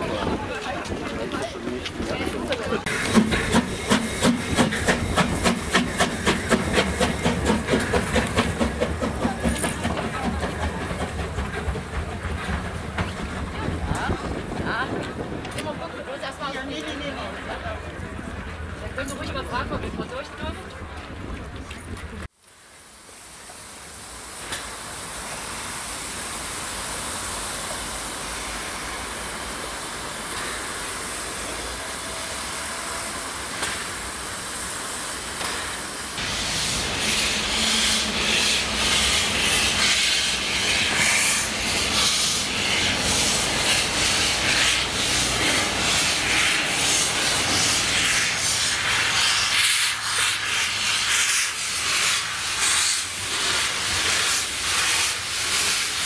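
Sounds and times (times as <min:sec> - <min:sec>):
steam locomotive hissing: 0:00.0 - 0:16.6, 0:22.6 - 0:56.0
steady rushing noise: 0:36.1 - 0:56.0.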